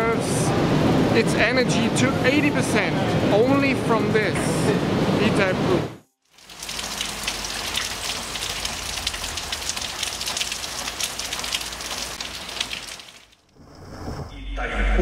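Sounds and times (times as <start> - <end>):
rain pattering: 6.3 - 13.6.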